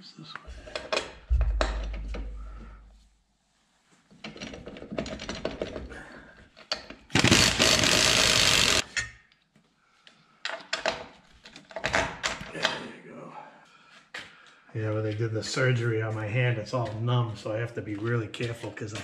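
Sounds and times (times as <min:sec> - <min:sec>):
power tool running: 0:07.1 - 0:08.9.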